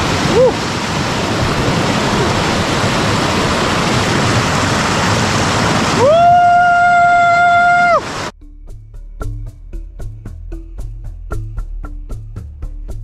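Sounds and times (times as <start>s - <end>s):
river water rushing over rocks: 0.0s - 8.3s.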